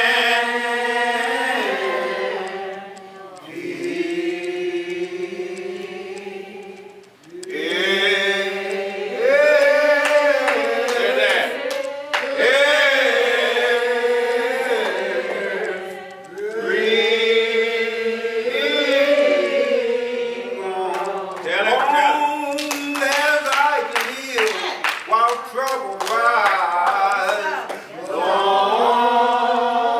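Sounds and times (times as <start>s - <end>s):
congregation singing a hymn: 0.0s - 29.9s.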